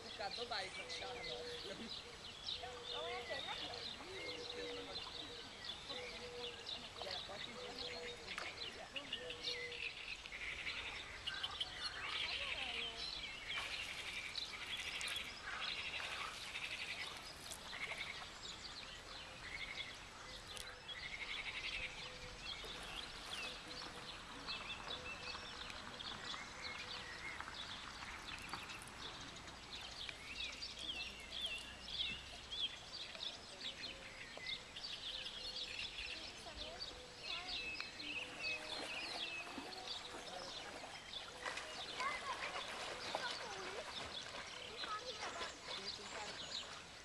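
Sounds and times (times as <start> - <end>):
birds chirping: 0.0 - 47.0
frogs croaking: 0.4 - 22.4.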